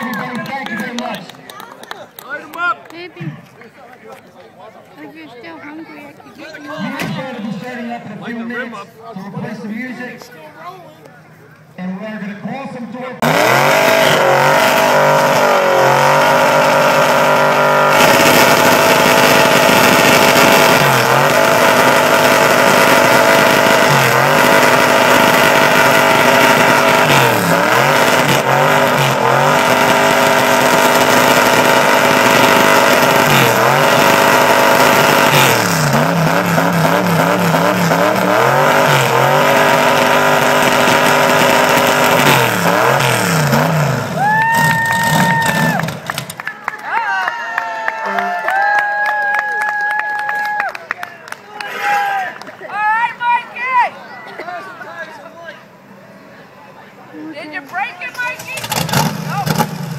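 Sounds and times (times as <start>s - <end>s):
truck engine revving high: 13.2s - 46.5s, 58.2s - 59.9s
tires spinning on pavement: 13.2s - 46.6s, 58.2s - 59.9s.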